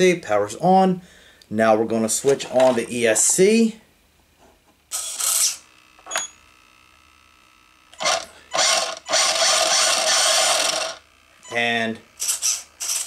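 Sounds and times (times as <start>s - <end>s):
toy car electric motor spinning: 4.9s - 5.7s, 8.0s - 11.0s, 12.1s - 13.0s.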